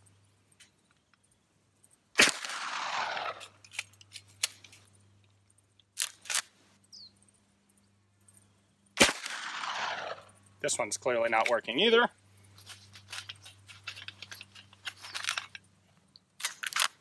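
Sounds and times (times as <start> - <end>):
gunshot echoing: 2.2 - 3.4, 9.0 - 10.3
light metallic clicks of gun: 2.2 - 6.5, 13.0 - 17.0.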